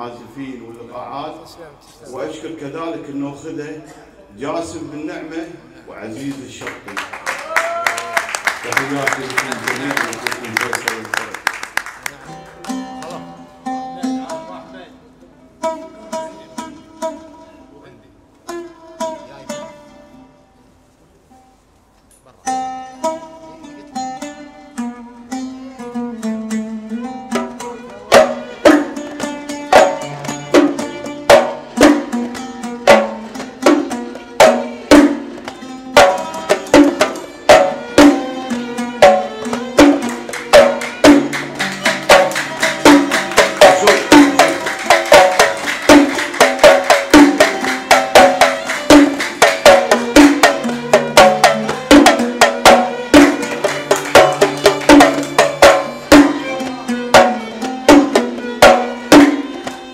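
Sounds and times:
plucked oud notes: 12.3 - 21.6, 22.4 - 59.9
hand drum rhythm: 25.8 - 59.9.

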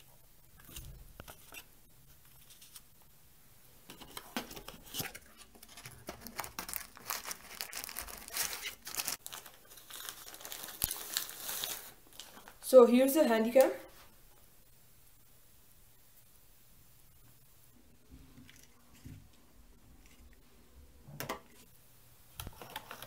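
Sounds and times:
plastic wrapping crinkling: 4.5 - 12.7.

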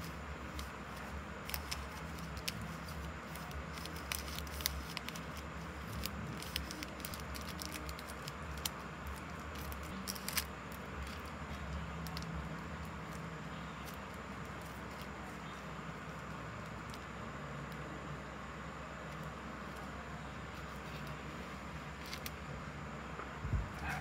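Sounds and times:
packaging clicks and rustles: 0.0 - 17.1, 20.5 - 22.4
steady low hum: 0.0 - 24.0.

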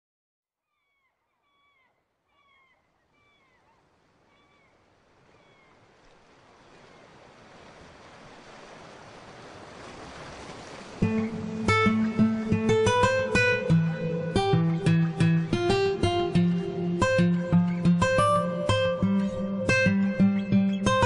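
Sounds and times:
seagulls calling: 0.7 - 7.8
surf washing: 3.6 - 18.0.

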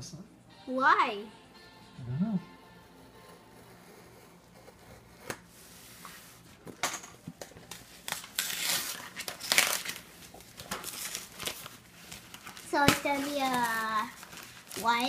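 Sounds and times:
packing tape tearing off cardboard: 7.4 - 15.0
tape and cardboard crinkling: 7.4 - 15.0.

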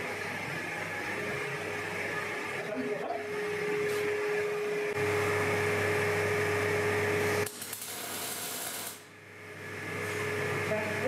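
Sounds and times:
welder arc crackling and hissing: 6.6 - 9.3.

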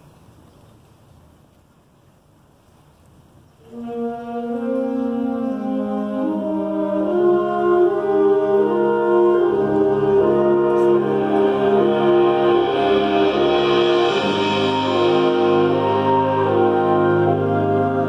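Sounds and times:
concert band playing sustained chords: 3.8 - 18.0.

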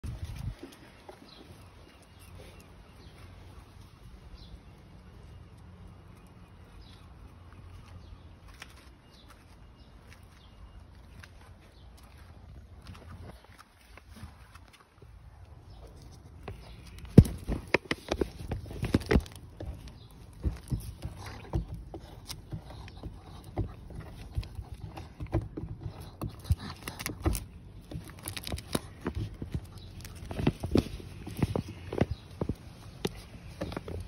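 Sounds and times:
paws scraping soil: 0.0 - 34.0
paws knocking on wooden boards: 16.4 - 34.0.

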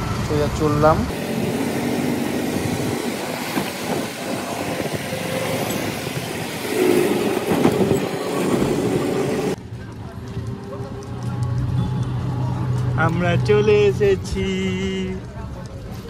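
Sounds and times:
road noise: 0.0 - 16.0
wind rushing past: 1.1 - 9.6.

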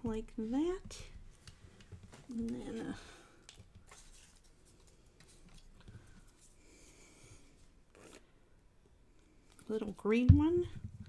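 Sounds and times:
paper rustling: 3.8 - 6.6.

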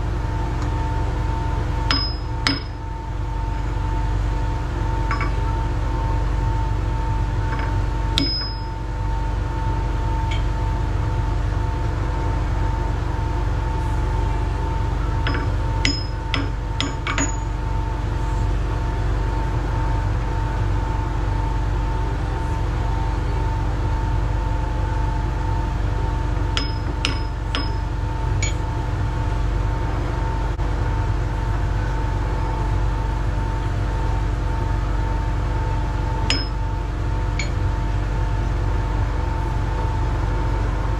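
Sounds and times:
steady machine hum: 0.0 - 40.9
metallic clinks of chuck key: 5.1 - 5.4.

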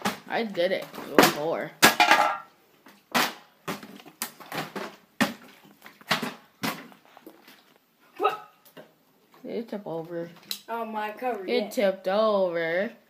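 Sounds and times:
plastic bottles landing knocks: 0.0 - 2.5, 3.1 - 7.0.

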